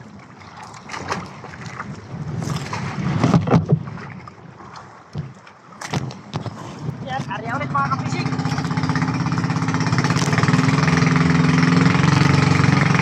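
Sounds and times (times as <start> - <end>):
choppy sea: 0.0 - 13.0
wind: 0.0 - 13.0
knocks and clatter on boat deck: 0.9 - 4.4, 5.0 - 9.1.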